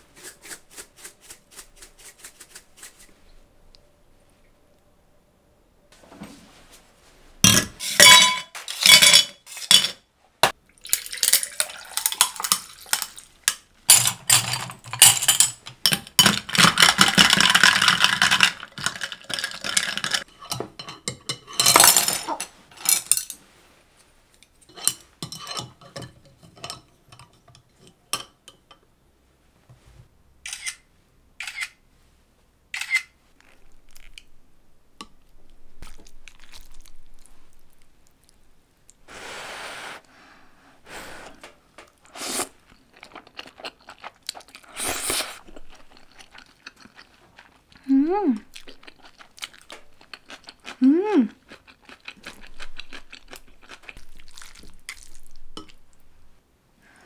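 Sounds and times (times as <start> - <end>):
drink pouring: 10.8 - 13.2.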